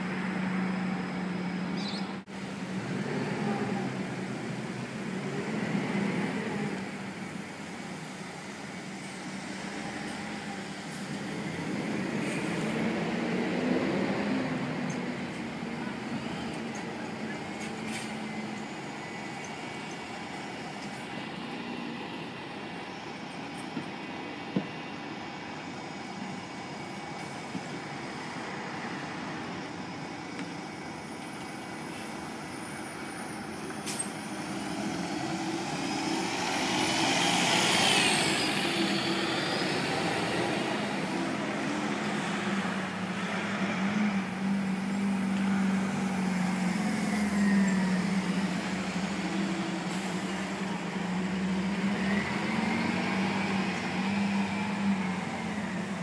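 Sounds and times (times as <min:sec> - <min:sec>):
bus engine hum: 0:00.0 - 0:56.0
street traffic noise: 0:00.0 - 0:56.0.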